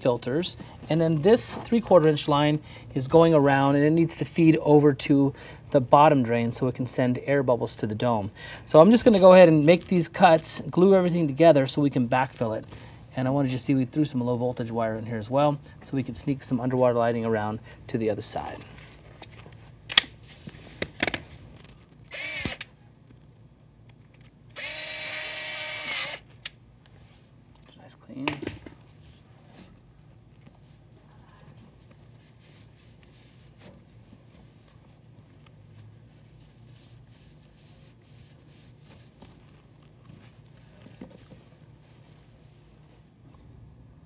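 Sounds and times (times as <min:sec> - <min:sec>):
low steady hum: 0:00.0 - 0:44.0
cloth rag wiping pipe: 0:28.9 - 0:43.2.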